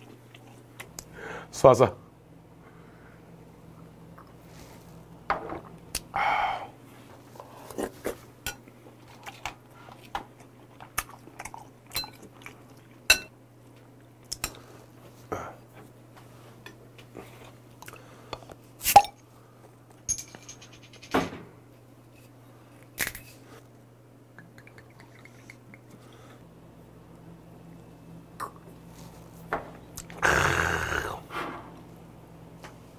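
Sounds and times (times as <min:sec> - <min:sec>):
chewing: 0:09.0 - 0:13.0.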